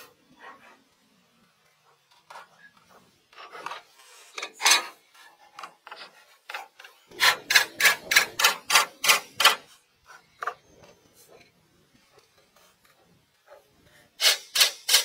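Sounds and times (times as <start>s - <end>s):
hand tool scraping wood: 3.3s - 11.4s, 13.5s - 15.0s.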